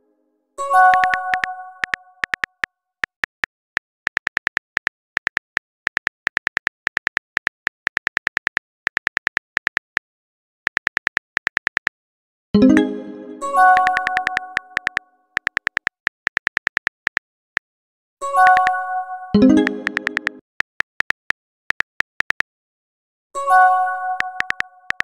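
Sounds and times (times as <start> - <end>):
keyboard typing clicks: 0.9 - 10.0, 10.7 - 12.0, 13.8 - 17.6, 18.4 - 18.8, 19.4 - 22.5, 24.2 - 25.0
message chime: 12.6 - 14.5, 19.4 - 20.4.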